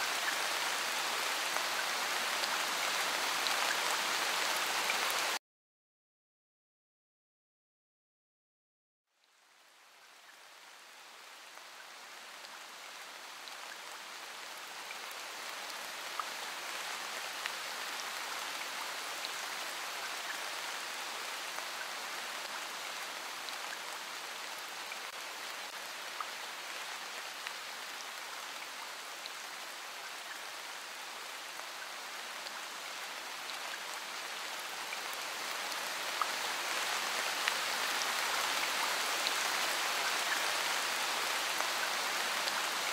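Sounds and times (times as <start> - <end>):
steady rain hissing: 0.0 - 5.4, 9.1 - 42.9.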